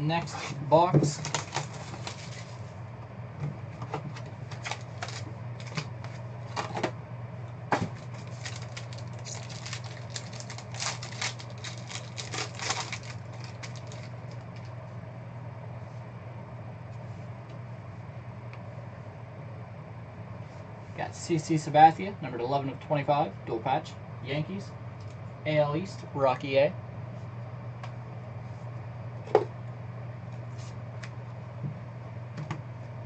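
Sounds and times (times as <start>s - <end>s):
steady low hum: 0.0s - 33.0s
foil pack crinkling and rustling: 1.1s - 2.7s, 4.1s - 6.8s, 7.8s - 14.8s.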